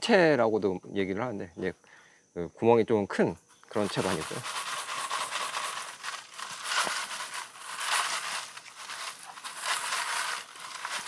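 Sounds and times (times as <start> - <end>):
seeds rattling in a plastic sieve: 3.8 - 11.0.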